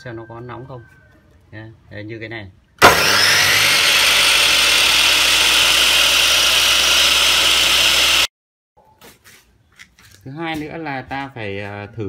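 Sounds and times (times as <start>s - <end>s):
chop saw motor whine: 2.8s - 8.3s.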